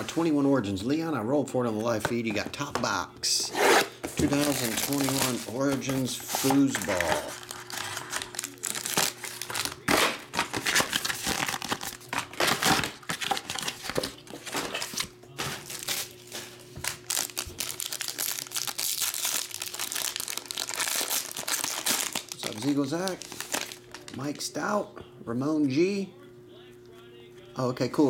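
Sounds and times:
foil pack crinkling and tearing: 4.1s - 24.4s.

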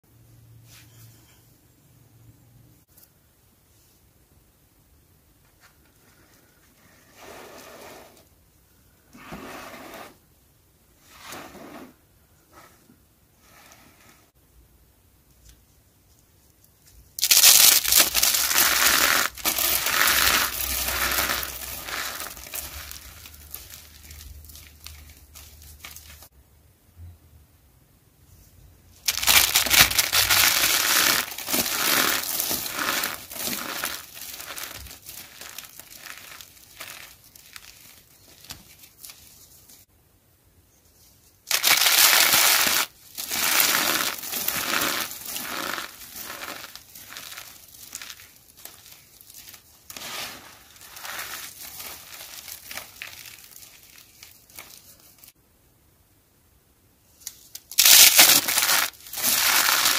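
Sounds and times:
soap strips crunching and crackling: 17.2s - 26.3s, 29.1s - 39.4s, 41.5s - 55.3s, 57.2s - 59.9s.

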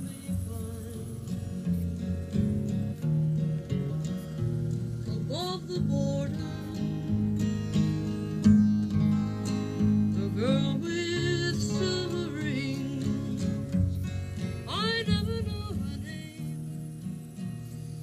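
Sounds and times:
person singing: 0.0s - 2.0s, 3.7s - 7.1s, 9.8s - 16.8s
acoustic guitar strumming: 0.0s - 18.0s.

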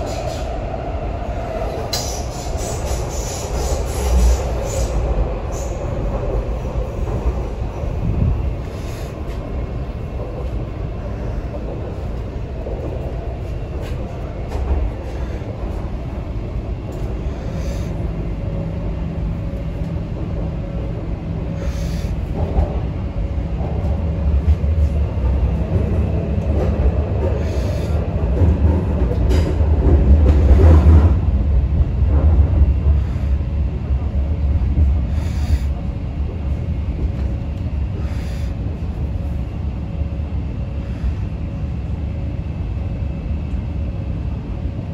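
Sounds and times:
train wheels rumbling on track: 0.0s - 44.9s.

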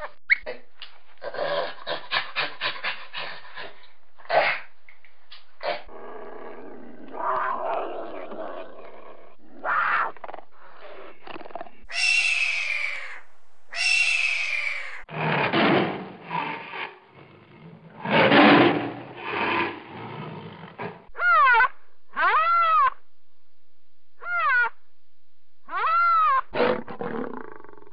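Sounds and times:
tiger growling low: 5.6s - 11.9s, 14.8s - 21.1s, 26.6s - 27.9s
cougar growling: 5.6s - 13.2s, 14.1s - 21.1s, 26.5s - 27.9s
hawk screaming: 9.6s - 10.2s, 11.9s - 15.1s, 21.2s - 23.0s, 24.2s - 24.8s, 25.7s - 26.5s.

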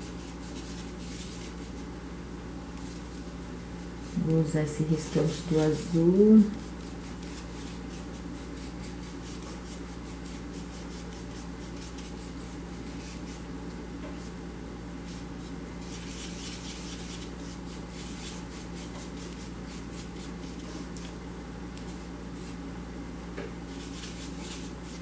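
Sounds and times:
paintbrush scratching on palette: 0.0s - 1.8s, 4.0s - 13.4s, 15.8s - 21.1s, 23.7s - 25.0s.

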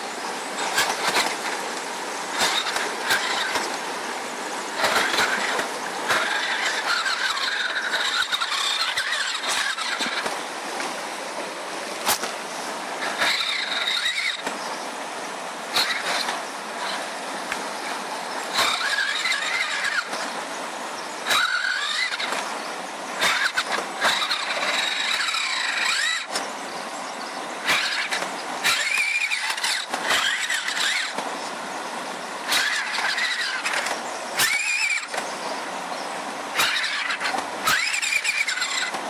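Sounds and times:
creek water running: 0.0s - 39.0s
toy truck electric motor whining: 0.6s - 1.6s, 2.3s - 3.8s, 4.7s - 10.4s, 13.0s - 14.6s, 15.7s - 17.1s, 18.5s - 20.3s, 21.2s - 22.6s, 23.2s - 26.5s, 27.6s - 31.3s, 32.4s - 35.3s, 36.5s - 39.0s.

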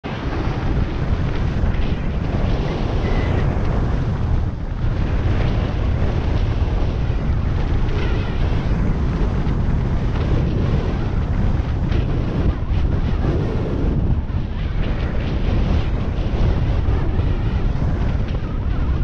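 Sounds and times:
wind buffeting microphone: 0.0s - 19.0s
skis scraping over snow: 0.4s - 14.0s.

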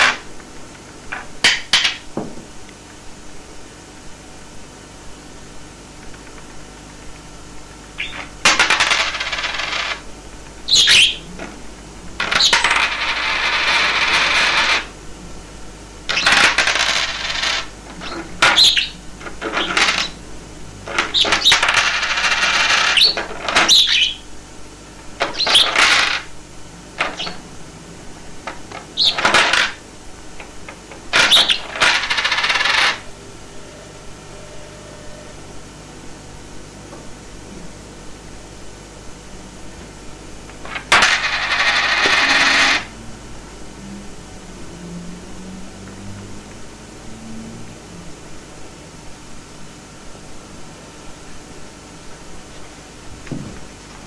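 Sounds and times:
coins clattering on a tabletop: 8.1s - 10.0s, 12.2s - 14.9s, 16.1s - 18.6s, 19.3s - 20.2s, 20.9s - 23.7s, 25.2s - 26.3s, 28.7s - 29.8s, 31.1s - 33.0s, 40.6s - 42.9s.

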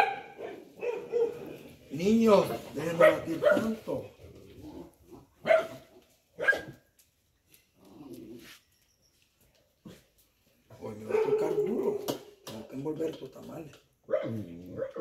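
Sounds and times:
dog barking: 0.0s - 1.5s, 2.9s - 3.8s, 5.4s - 5.8s, 6.4s - 6.8s, 11.0s - 12.1s, 14.1s - 15.0s.

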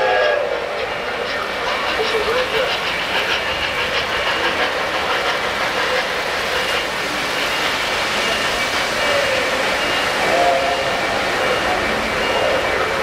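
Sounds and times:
model train rumbling past: 0.0s - 13.0s.

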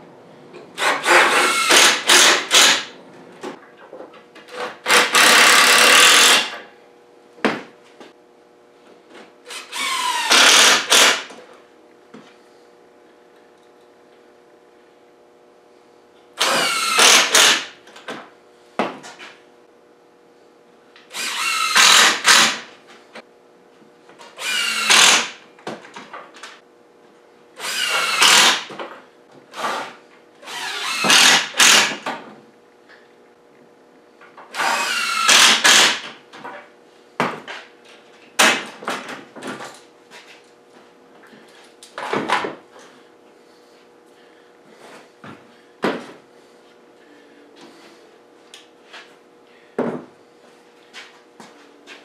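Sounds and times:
impact driver whining: 0.8s - 2.9s, 4.6s - 6.6s, 9.5s - 11.3s, 16.4s - 17.8s, 21.1s - 22.7s, 24.4s - 25.4s, 27.6s - 28.7s, 29.5s - 32.0s, 34.5s - 36.1s.

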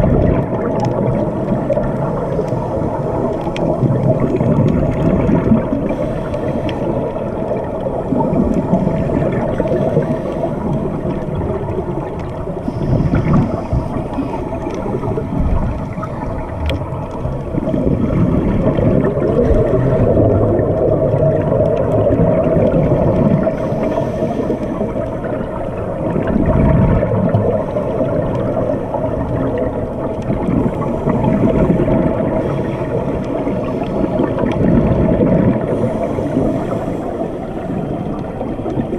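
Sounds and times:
exhaled bubbles underwater: 0.0s - 38.9s
underwater regulator breathing: 5.7s - 7.4s, 12.0s - 20.4s, 22.9s - 25.2s, 30.7s - 38.3s.

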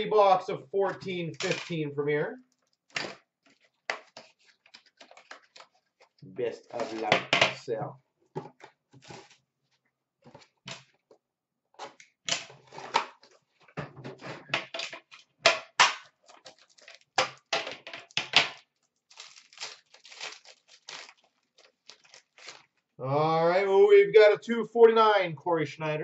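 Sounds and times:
packaging crinkling and ripping: 2.5s - 7.1s, 9.0s - 9.4s, 16.0s - 23.0s.

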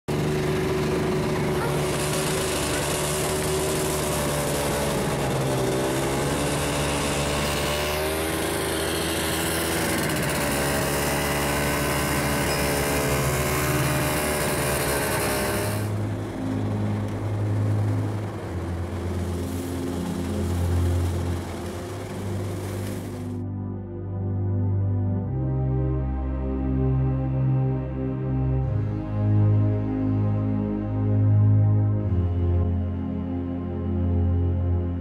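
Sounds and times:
snowmobile engine revving: 0.1s - 23.4s.

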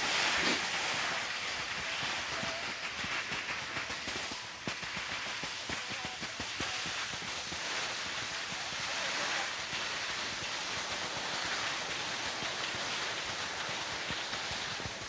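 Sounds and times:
skis sliding over snow: 0.0s - 15.0s.

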